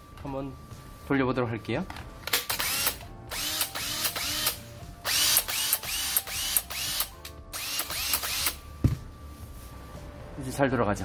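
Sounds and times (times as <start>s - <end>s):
cordless drill motor whine: 2.7s - 8.6s.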